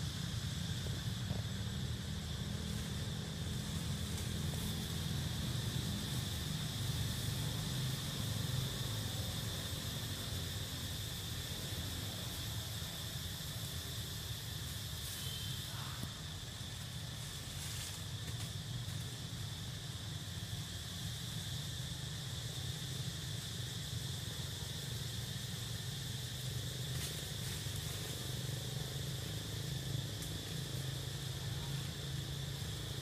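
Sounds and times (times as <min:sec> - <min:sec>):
insects buzzing: 0:00.0 - 0:33.0
low steady rumble: 0:00.0 - 0:33.0
faint rustles: 0:15.0 - 0:19.6.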